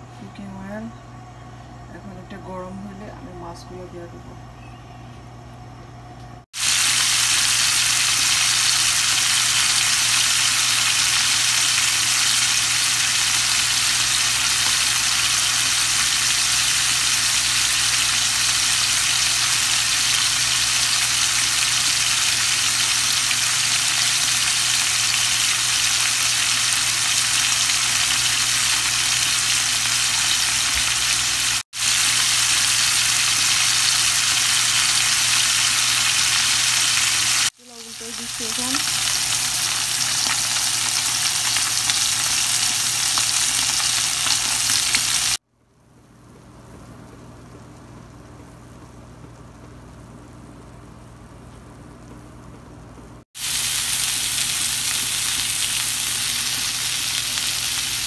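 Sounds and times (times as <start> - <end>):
fish sizzling in frying pan: 6.6 - 45.4, 53.4 - 58.0.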